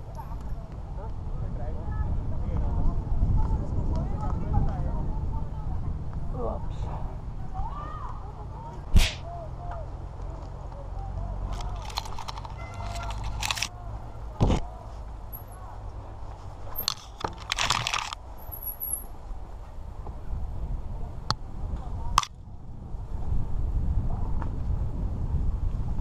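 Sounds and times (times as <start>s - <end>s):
steady low rumble: 18.1s - 26.0s.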